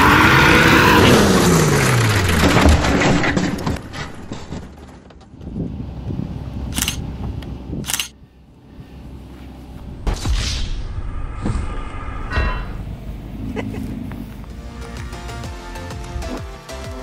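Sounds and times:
car engine: 0:00.0 - 0:03.9, 0:11.4 - 0:15.3
camera shutter clicks: 0:06.8 - 0:07.0, 0:07.9 - 0:08.1.

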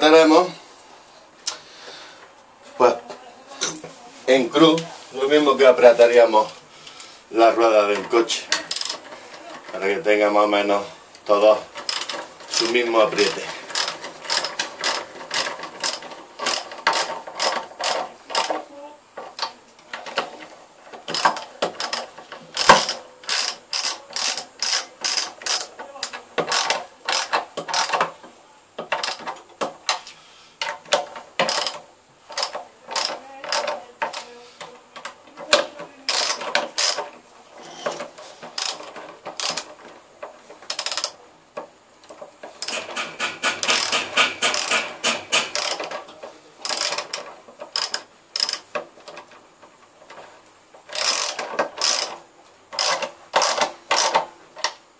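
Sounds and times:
ratchet wrench clicking: 0:08.6 - 0:09.1, 0:11.8 - 0:18.6, 0:21.1 - 0:28.1, 0:28.9 - 0:29.4, 0:31.4 - 0:34.2, 0:36.1 - 0:37.0, 0:38.6 - 0:39.7, 0:40.7 - 0:41.2, 0:42.6 - 0:46.0, 0:46.6 - 0:48.8, 0:50.9 - 0:54.2.

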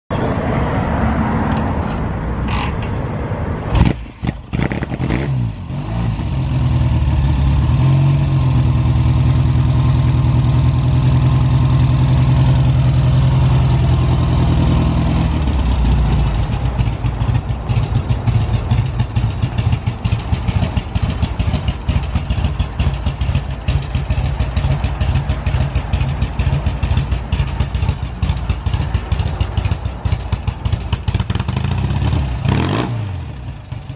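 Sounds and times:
motorcycle engine idling: 0:06.3 - 0:32.5.

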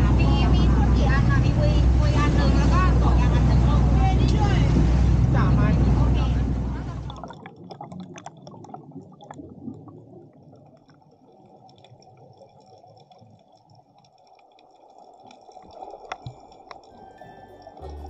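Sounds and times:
muffled underwater rushing: 0:00.0 - 0:18.0
faint clicks and crackles: 0:10.4 - 0:18.0.

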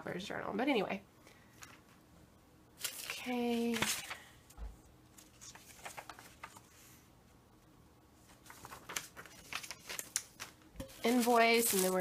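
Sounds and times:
paper rustling and tapping: 0:05.4 - 0:06.6, 0:08.3 - 0:12.0.

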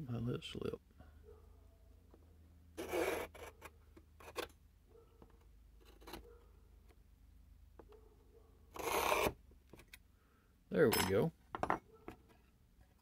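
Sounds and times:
metal scribe scratching fiberglass: 0:02.8 - 0:04.5, 0:08.7 - 0:09.4.

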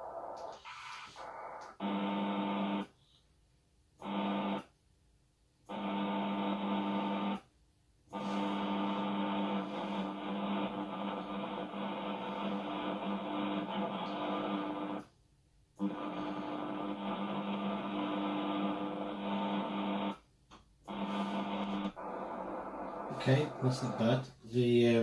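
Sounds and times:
radio hiss: 0:00.0 - 0:02.8, 0:08.1 - 0:15.1, 0:15.8 - 0:20.2, 0:20.9 - 0:25.0
steady low radio tones: 0:00.0 - 0:03.0, 0:08.1 - 0:15.2, 0:15.8 - 0:25.0.

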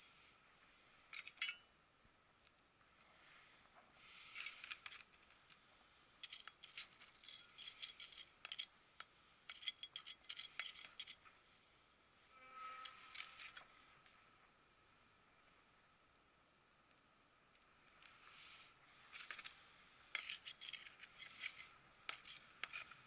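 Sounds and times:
trowel scraping potting mix: 0:09.5 - 0:11.2, 0:19.2 - 0:23.0.

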